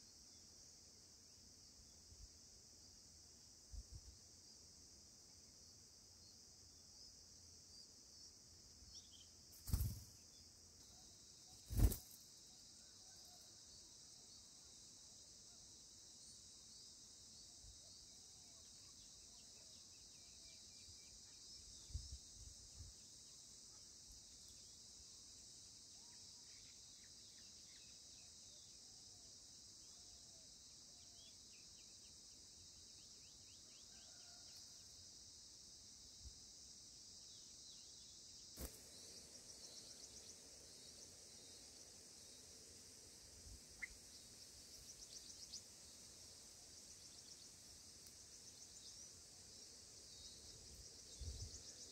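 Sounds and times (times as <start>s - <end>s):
insect chorus: 0.0s - 51.9s
nestlings begging chirps: 43.8s - 44.2s.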